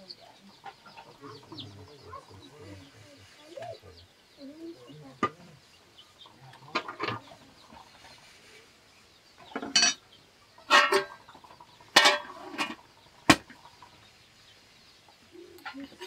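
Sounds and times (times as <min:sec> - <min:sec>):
metal cookware clanking: 0:09.5 - 0:10.0, 0:10.7 - 0:11.2, 0:11.9 - 0:12.8.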